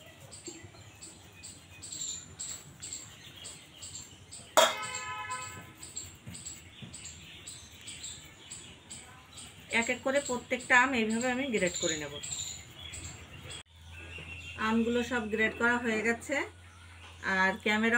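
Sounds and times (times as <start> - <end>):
mango rubbed on grater: 0.0 - 4.3.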